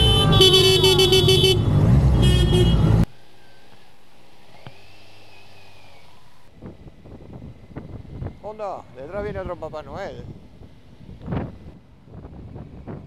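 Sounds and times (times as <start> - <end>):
horn blasts: 0.0 - 3.1
motorcycle engines running: 0.0 - 3.1.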